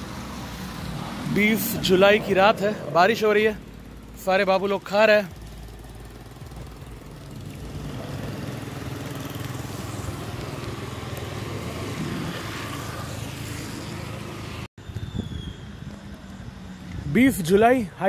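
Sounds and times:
vehicle engine idling: 0.6 - 10.8.

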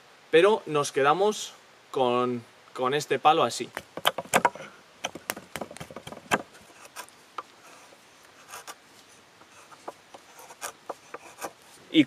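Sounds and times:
axe knocking into wood: 3.8 - 6.5.

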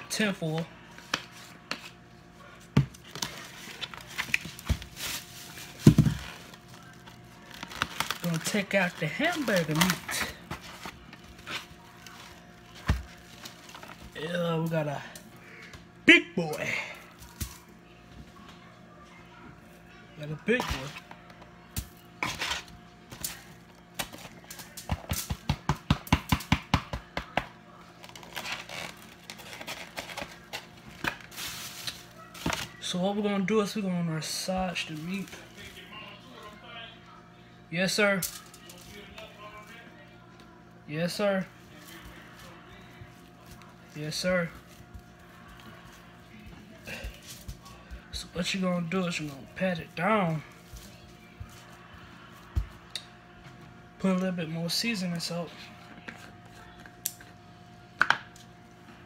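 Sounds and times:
tinfoil crinkling: 3.0 - 15.3, 28.0 - 33.0.

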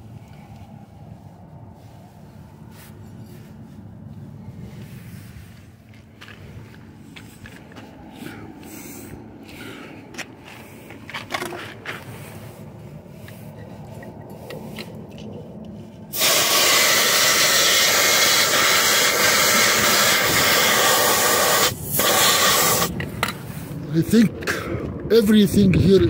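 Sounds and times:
air hissing out of tire valve: 16.1 - 22.9.

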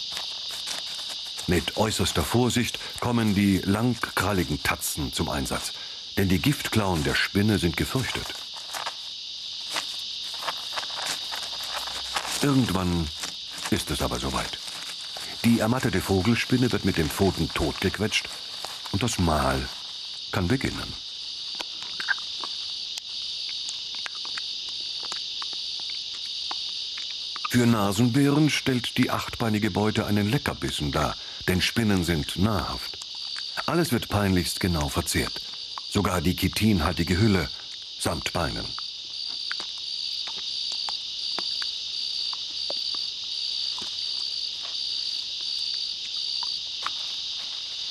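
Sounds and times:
animal chewing crunches: 0.0 - 5.7, 6.4 - 20.8, 21.5 - 27.5, 39.2 - 47.9
insects chirring: 0.0 - 47.9.

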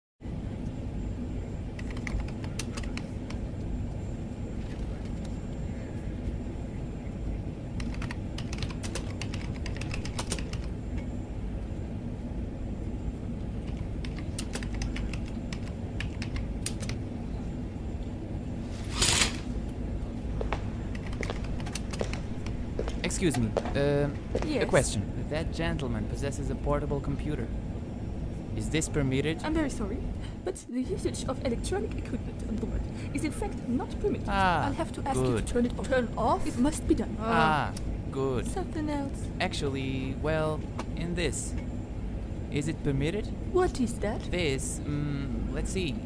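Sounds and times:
aircraft cabin rumble: 0.3 - 43.5
laptop keys tapping: 1.8 - 3.4, 7.8 - 10.7, 13.6 - 17.0, 20.9 - 22.6.

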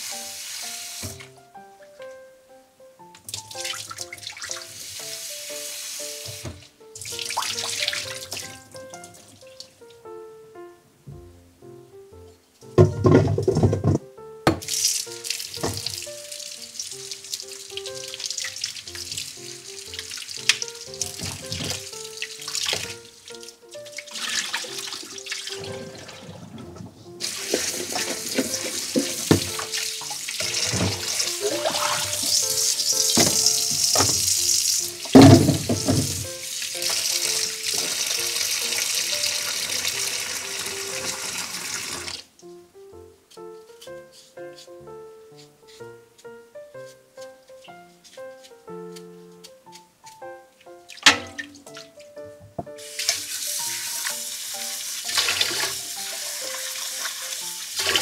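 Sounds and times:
tap running into steel bowl: 27.2 - 29.7, 33.1 - 34.4
loud thump: 35.2 - 36.2.

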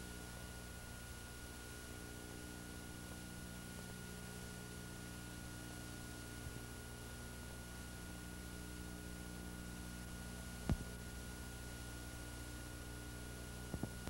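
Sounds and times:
videotape hum and hiss: 0.0 - 14.0
small click: 10.6 - 11.0.

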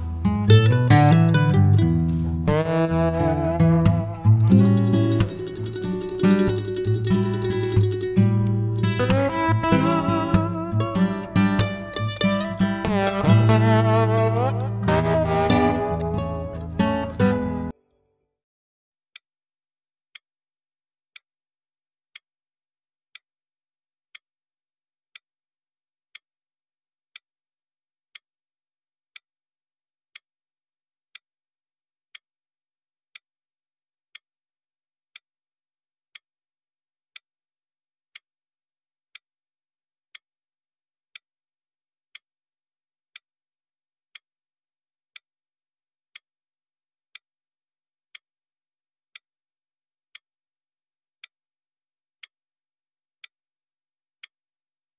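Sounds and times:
clock ticking: 3.7 - 17.6.

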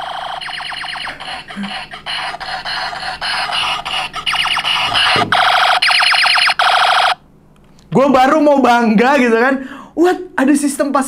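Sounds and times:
toy belt electronic warble: 0.0 - 7.2.

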